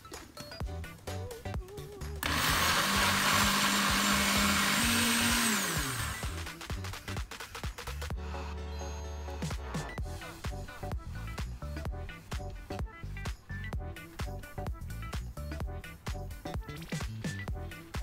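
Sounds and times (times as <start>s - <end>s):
background music with steady beat: 0.0s - 18.0s
electric mixer motor running: 2.2s - 6.7s.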